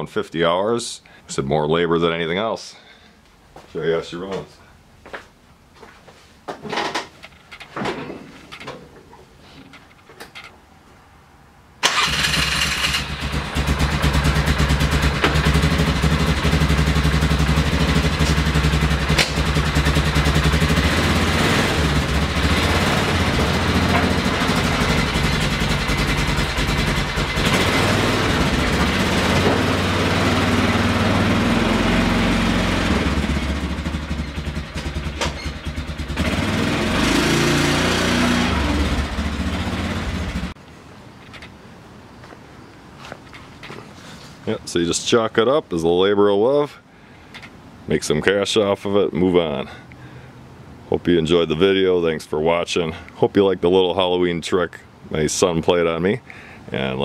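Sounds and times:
atv engine running: 0:11.9 - 0:40.6.

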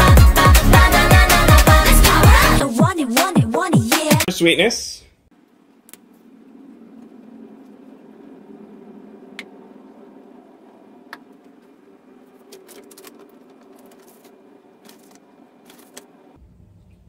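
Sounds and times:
steady low hum: 0:05.0 - 0:17.0
paper bag rustling: 0:12.5 - 0:16.0.

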